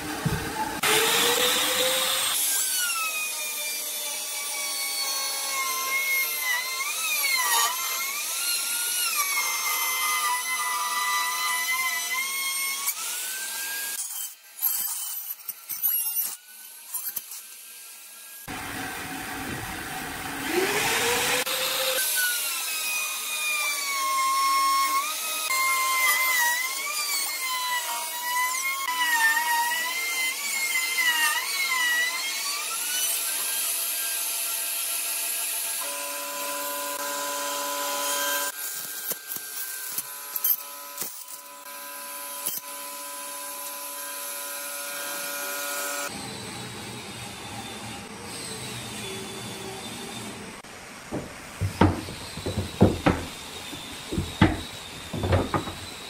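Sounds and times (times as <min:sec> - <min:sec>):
electric router whine: 0:00.0 - 0:03.4, 0:18.5 - 0:24.0, 0:45.9 - 0:56.0.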